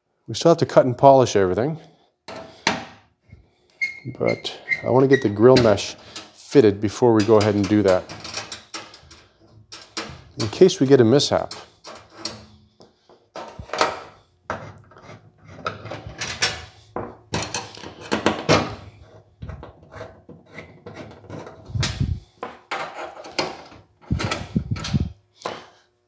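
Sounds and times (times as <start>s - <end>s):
metal mesh scraping and rattling: 4.5s - 12.6s.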